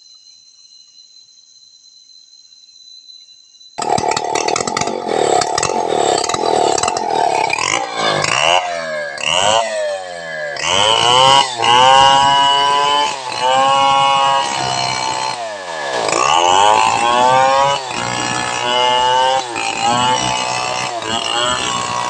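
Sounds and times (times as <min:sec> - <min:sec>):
chainsaw cutting log: 0:03.8 - 0:22.0.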